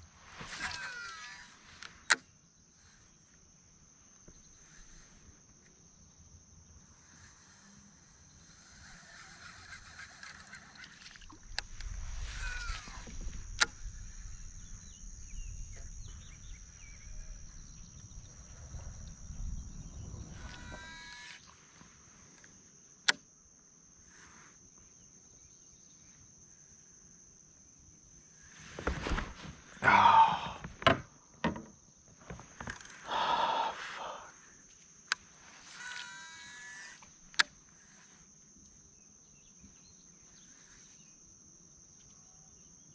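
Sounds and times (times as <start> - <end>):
high-pitched insect drone: 0.0 - 1.8, 4.3 - 21.7, 32.6 - 42.8.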